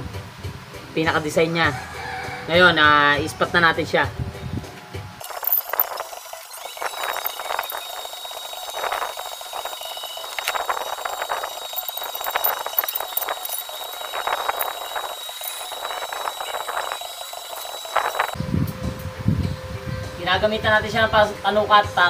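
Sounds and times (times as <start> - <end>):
steady high-pitched whine: 3.5 - 22.0
welding arc crackling and sizzling: 5.2 - 18.4.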